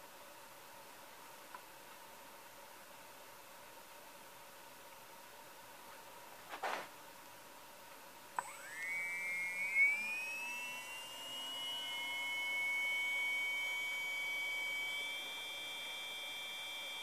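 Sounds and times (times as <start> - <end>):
electric motor whining: 8.4 - 17.0.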